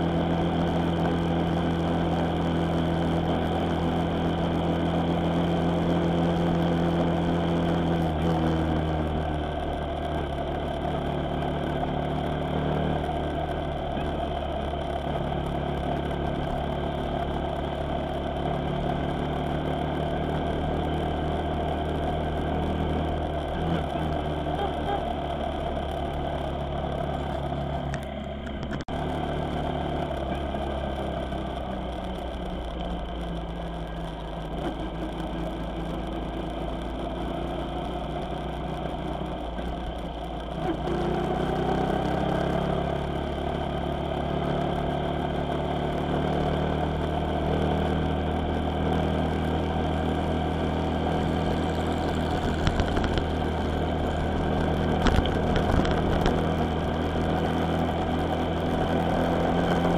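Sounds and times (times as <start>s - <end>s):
vehicle engine while driving: 0.0s - 59.9s.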